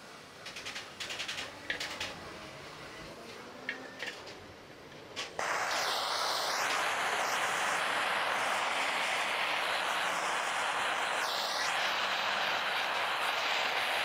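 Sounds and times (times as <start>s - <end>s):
gas torch hissing: 0.0s - 4.3s, 5.2s - 14.0s.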